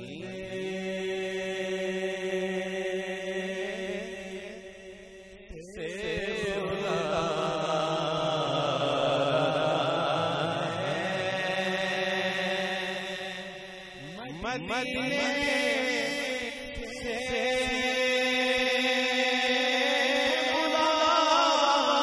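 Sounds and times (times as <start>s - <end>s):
man chanting melismatic song: 5.6s - 22.0s.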